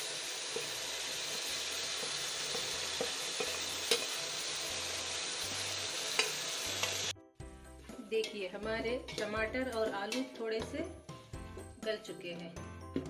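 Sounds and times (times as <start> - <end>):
food sizzling in a pot: 0.0 - 7.2.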